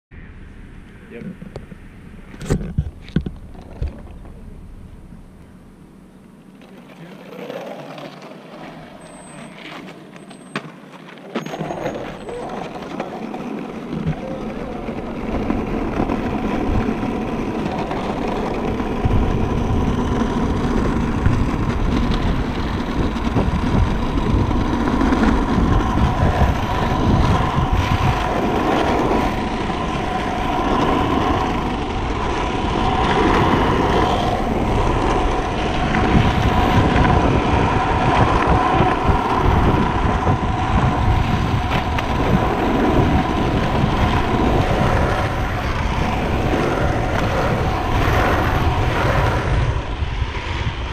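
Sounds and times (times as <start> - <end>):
wheels rolling over asphalt: 0.4 - 50.9
wind buffeting microphone: 11.8 - 50.9.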